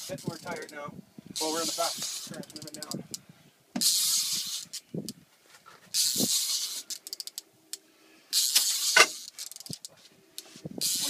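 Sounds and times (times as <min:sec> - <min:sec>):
fishing reel line hissing: 0:01.4 - 0:02.8, 0:03.8 - 0:04.9, 0:05.9 - 0:07.5, 0:08.3 - 0:09.8, 0:10.8 - 0:11.0.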